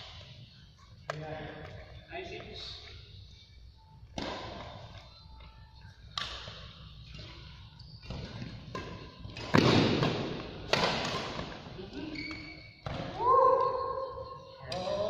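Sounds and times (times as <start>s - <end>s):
badminton rackets hitting shuttlecock: 8.1s - 11.6s.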